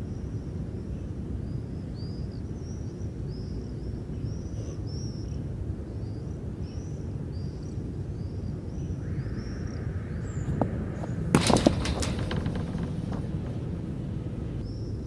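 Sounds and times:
small birds chirping: 0.0 - 15.0
steady low rumble: 8.8 - 15.0.

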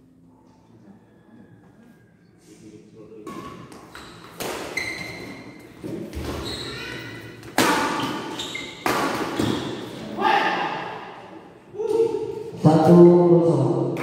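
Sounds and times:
racket hitting shuttlecock: 3.3 - 5.0, 7.4 - 9.8.

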